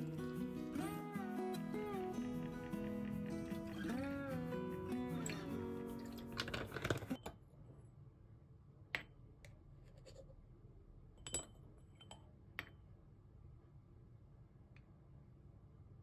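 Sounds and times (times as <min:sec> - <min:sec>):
metal spoon clinking on glass: 0:05.1 - 0:07.4.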